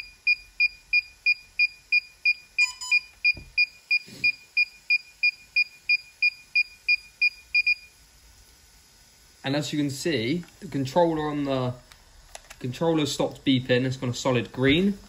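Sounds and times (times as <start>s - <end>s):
short high beeps: 2.3s - 7.9s.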